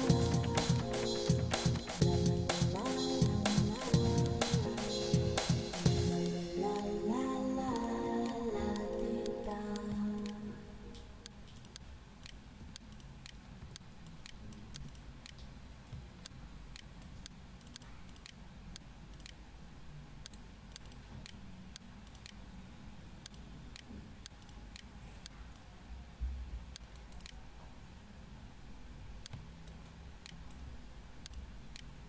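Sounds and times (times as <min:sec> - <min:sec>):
low steady hum: 0:00.0 - 0:32.0
computer mouse clicks: 0:09.8 - 0:19.4, 0:20.2 - 0:22.4, 0:23.2 - 0:25.7, 0:26.8 - 0:27.4, 0:29.2 - 0:32.0.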